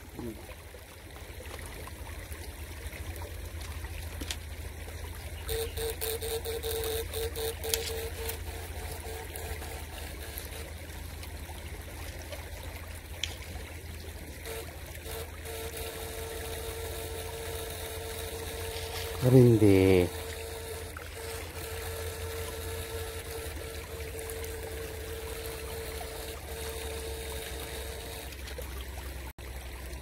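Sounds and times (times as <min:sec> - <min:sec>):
stream water trickling: 0:00.0 - 0:30.0
steady low hum: 0:02.0 - 0:29.8
humming tone: 0:05.2 - 0:28.6.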